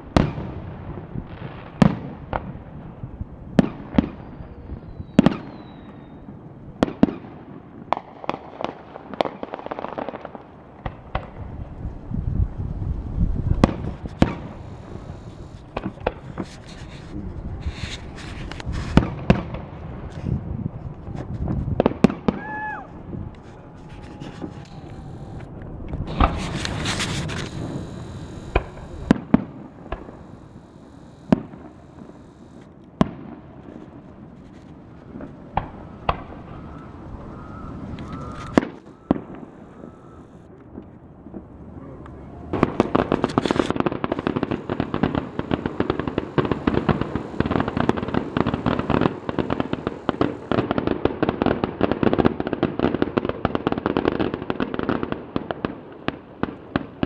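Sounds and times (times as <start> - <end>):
firework crackling: 0.0 - 57.0
firework whistle: 3.9 - 6.4, 11.1 - 19.4, 21.0 - 40.6, 41.3 - 51.4
firework shells bursting: 8.0 - 20.3, 23.2 - 51.6.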